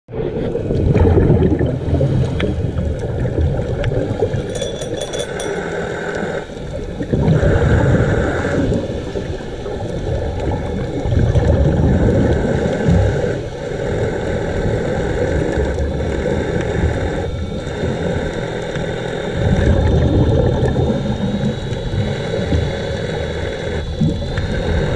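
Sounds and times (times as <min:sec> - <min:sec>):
exhaled bubbles: 0:00.1 - 0:24.9.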